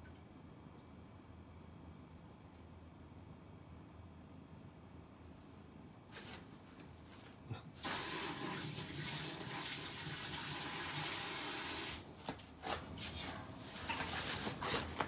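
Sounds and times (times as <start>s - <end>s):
tap water running into sink: 7.8s - 11.9s.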